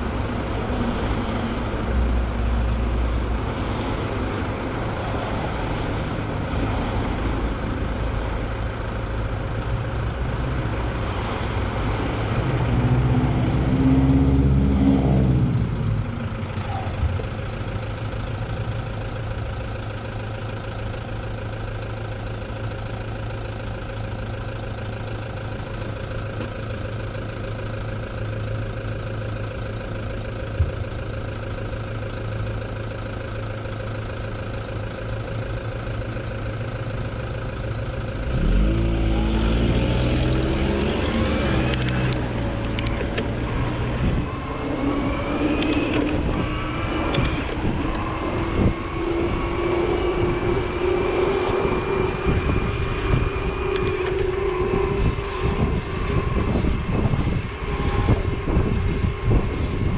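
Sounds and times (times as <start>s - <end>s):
car engines idling: 0.0s - 59.9s
louder vehicle passing: 10.9s - 17.1s, 38.2s - 59.9s.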